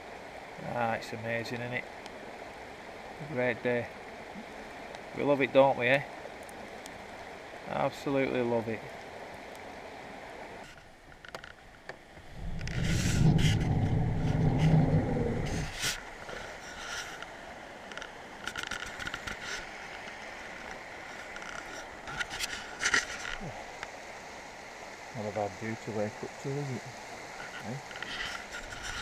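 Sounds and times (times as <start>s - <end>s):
stream running: 0.0s - 29.0s
loud low rumble: 12.4s - 15.6s
handling clicks and scrapes: 12.5s - 17.3s, 18.0s - 20.2s, 21.2s - 23.4s, 27.4s - 29.0s.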